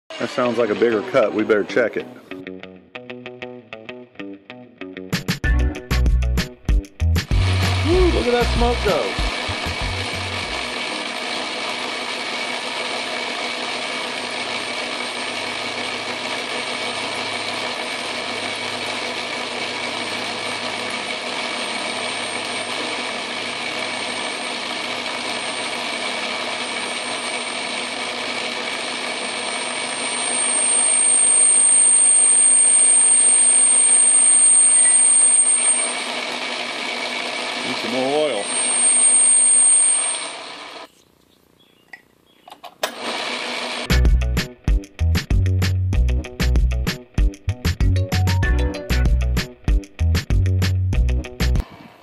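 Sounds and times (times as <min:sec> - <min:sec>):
lathe motor and gears whining: 0:00.1 - 0:01.9, 0:07.3 - 0:40.9, 0:42.8 - 0:44.0
high-pitched squeal: 0:29.2 - 0:36.1, 0:37.6 - 0:40.8.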